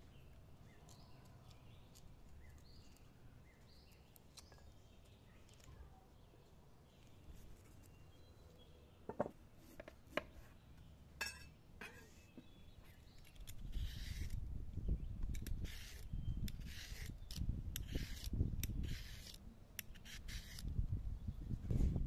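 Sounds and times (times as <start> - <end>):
peeler scraping carrot: 13.1 - 14.4, 15.2 - 20.8.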